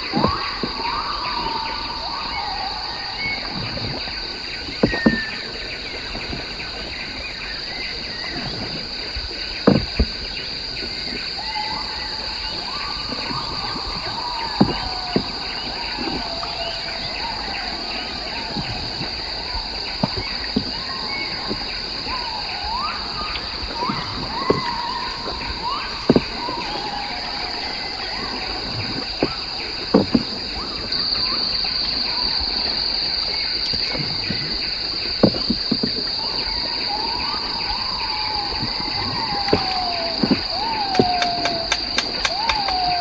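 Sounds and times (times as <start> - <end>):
birds whistling calls: 0.0 - 8.8, 10.3 - 29.8, 36.1 - 43.0
high-pitched insect drone: 35.8 - 43.0
sharp clicks: 40.9 - 42.8.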